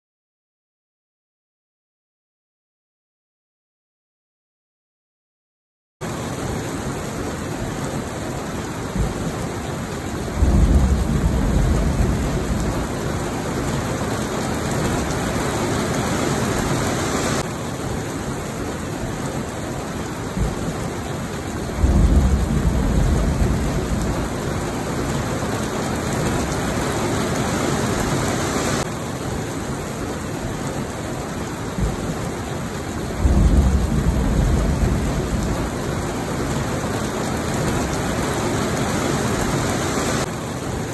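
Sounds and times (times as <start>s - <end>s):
heavy rain falling: 6.0s - 40.9s
thunder rolling: 10.3s - 13.5s, 21.7s - 24.6s, 33.1s - 36.1s.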